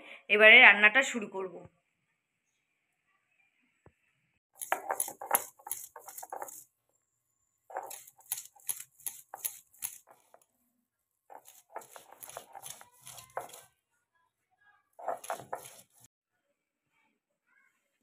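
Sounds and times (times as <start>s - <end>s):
stone roller grinding garlic: 4.6s - 6.6s, 7.7s - 10.4s, 11.3s - 13.7s, 15.0s - 16.1s.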